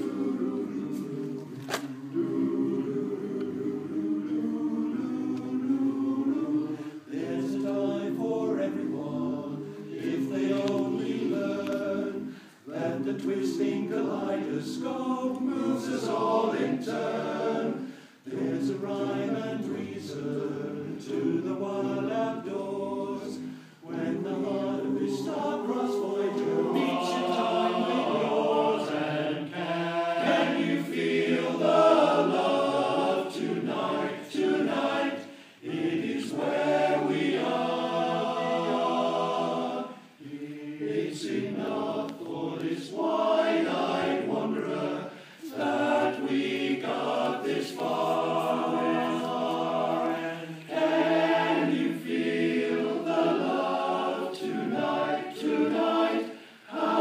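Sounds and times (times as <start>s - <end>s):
men's chorus singing a cappella: 0.0s - 57.0s.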